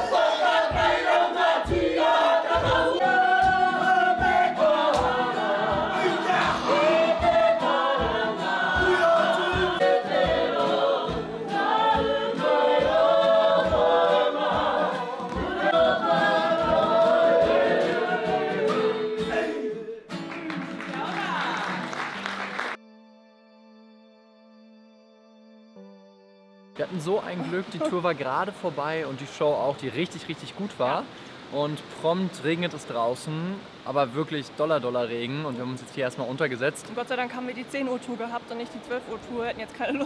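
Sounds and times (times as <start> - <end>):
steady low beat: 0.0 - 16.9
group singing in chorus: 0.0 - 20.1.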